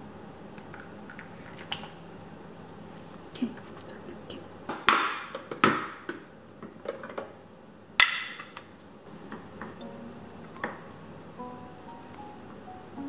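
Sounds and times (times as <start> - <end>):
kitchen knocks and clicks: 4.7 - 6.2.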